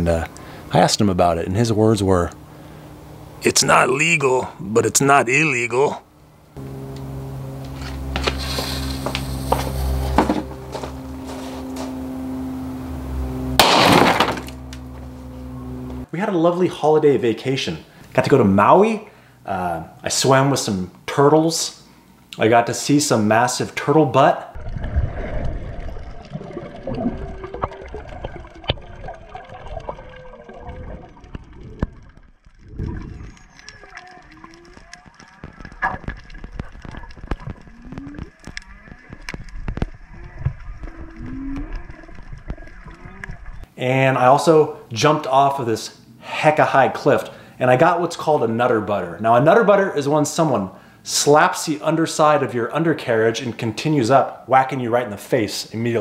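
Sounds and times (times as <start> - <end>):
steady low hum: 0.0 - 16.4
fuse sputtering and crackling: 6.5 - 16.1, 24.6 - 43.7
firecracker bang: 13.5 - 14.6
water rushing: 24.6 - 38.4
whale song underwater: 24.6 - 43.7.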